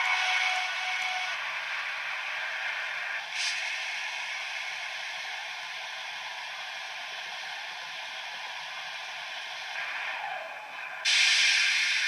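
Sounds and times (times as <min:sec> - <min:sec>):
sharp hiss: 0:11.1 - 0:12.0.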